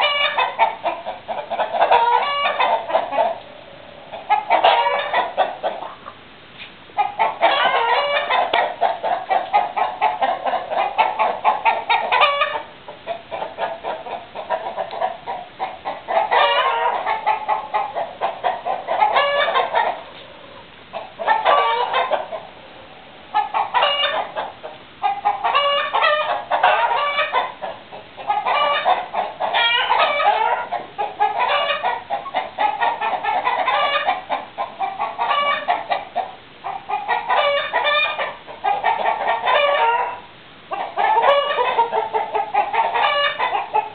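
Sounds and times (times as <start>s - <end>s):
chickens clucking: 0.0s - 43.9s.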